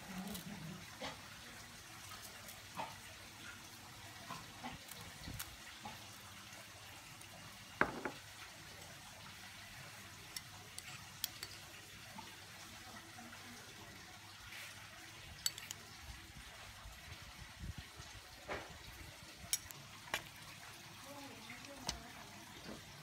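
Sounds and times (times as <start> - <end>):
kitchenware knocks and clicks: 7.8 - 8.2.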